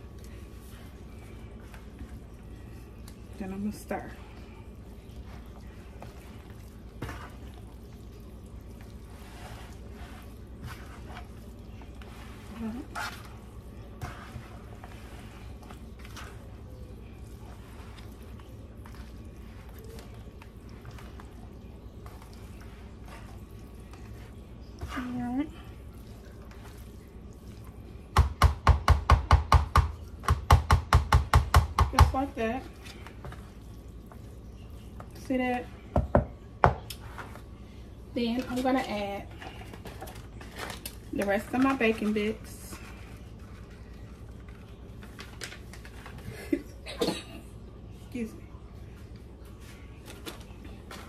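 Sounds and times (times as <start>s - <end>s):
steady low hum: 0.0s - 30.5s
spoon scraping bowl: 8.8s - 21.4s.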